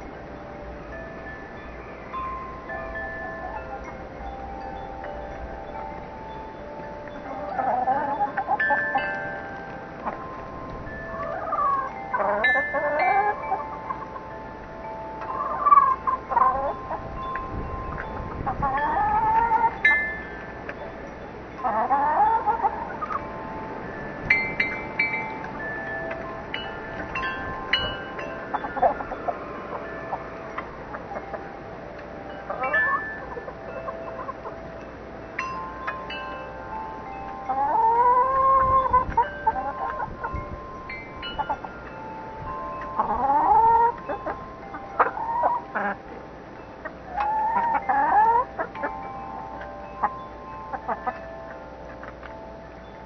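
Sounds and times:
wind chimes ringing: 0.0s - 53.0s
chickens clucking: 4.9s - 34.7s, 35.8s - 40.5s, 41.2s - 52.4s
hens calling: 6.2s - 17.2s, 18.0s - 20.8s, 21.6s - 23.5s, 24.4s - 31.5s, 32.5s - 34.7s, 37.3s - 40.4s, 41.2s - 46.2s, 46.8s - 51.3s.

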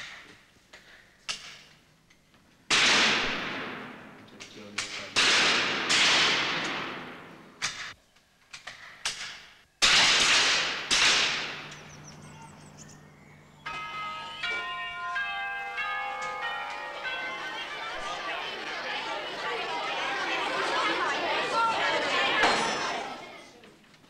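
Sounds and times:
rifle shots echoing: 2.7s - 4.3s, 4.9s - 7.7s, 9.8s - 12.7s
ringing bell-like notes: 11.5s - 19.4s.

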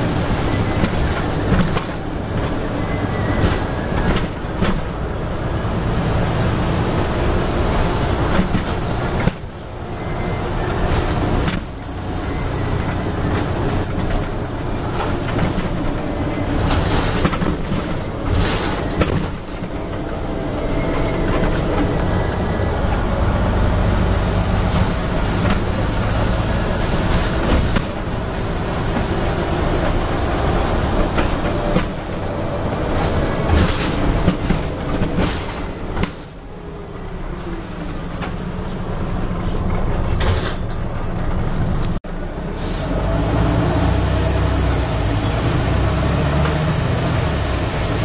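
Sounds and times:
bus diesel engine droning: 0.0s - 48.0s
road rumble: 0.0s - 48.0s
bodywork clicks and rattles: 10.2s - 23.2s, 28.9s - 36.5s.

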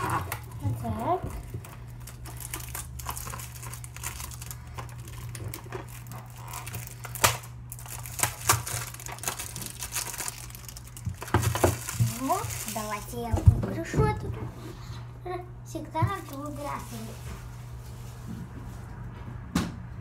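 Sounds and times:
plastic wrapping crinkling and tearing: 0.0s - 13.4s, 16.2s - 18.3s.

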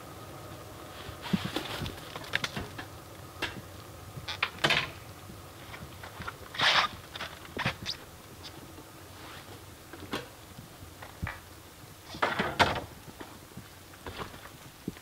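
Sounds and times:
rustling scraping sounds: 0.9s - 2.8s, 5.6s - 9.7s.

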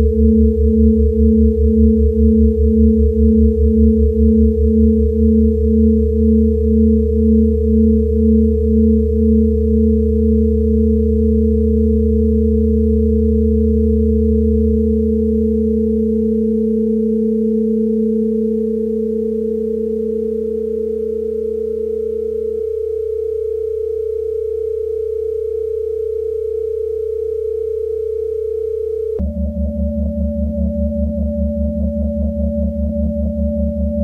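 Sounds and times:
sustained pure tones: 0.0s - 34.0s
low drone: 29.0s - 34.0s.

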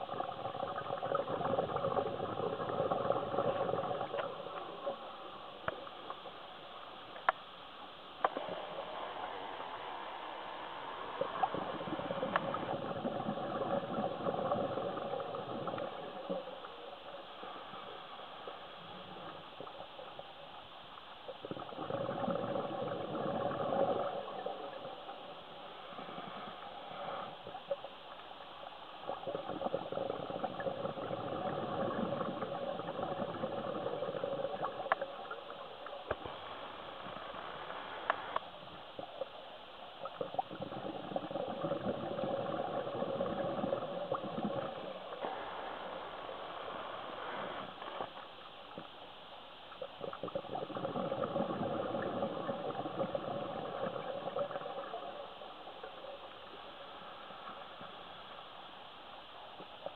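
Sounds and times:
exhaled bubbles gurgling: 0.0s - 6.8s, 7.9s - 49.0s, 49.7s - 58.4s
regulator hiss: 3.5s - 21.4s, 22.8s - 29.2s, 30.1s - 40.1s, 42.6s - 50.3s.

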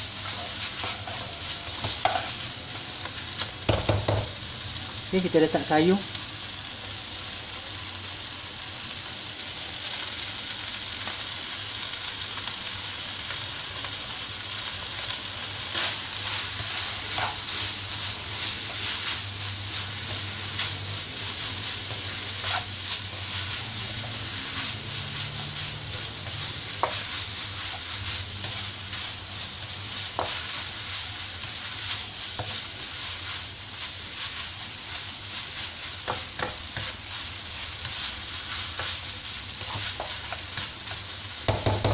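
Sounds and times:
spatula scraping a pan: 0.0s - 2.6s, 15.6s - 41.9s
rice sizzling in a wok: 0.0s - 41.9s.

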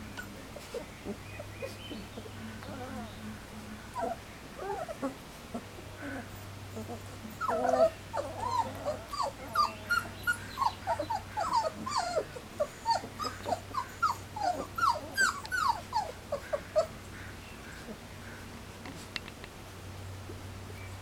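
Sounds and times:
puppies whimpering and crying: 0.0s - 3.3s, 3.9s - 17.1s.

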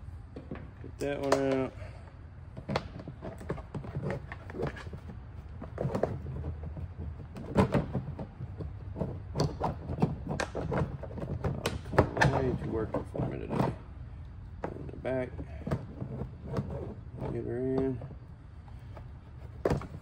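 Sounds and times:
plastic parts clicking and scraping: 2.5s - 13.8s.

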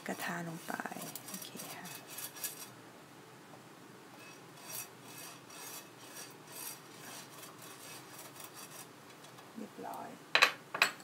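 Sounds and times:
brush scratching on grill plate: 0.0s - 2.8s, 4.2s - 8.9s.

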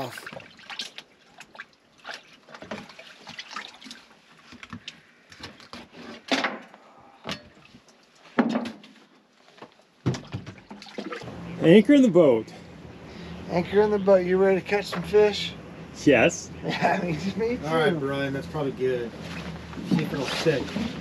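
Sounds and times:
water lapping and splashing: 0.0s - 5.9s, 9.9s - 11.3s.

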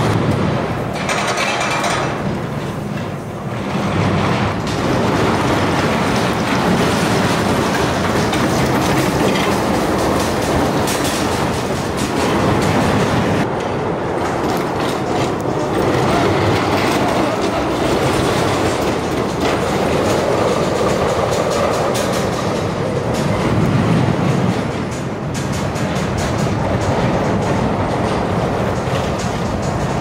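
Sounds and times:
clacks over track joints: 0.0s - 30.0s
roller coaster wheels rumbling on rail: 0.0s - 30.0s.

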